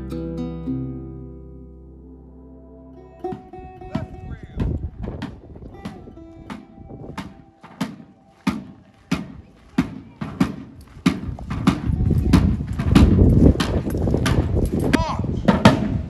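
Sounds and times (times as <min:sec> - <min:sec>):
side drum marching beat: 0:03.3 - 0:14.6.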